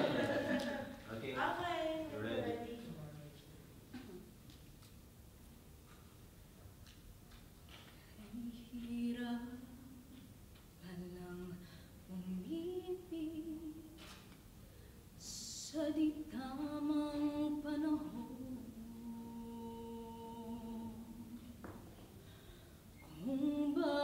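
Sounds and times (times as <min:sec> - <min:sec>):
woman singing a cappella: 0:01.4 - 0:03.0, 0:08.1 - 0:14.3, 0:15.2 - 0:21.8, 0:23.0 - 0:24.0.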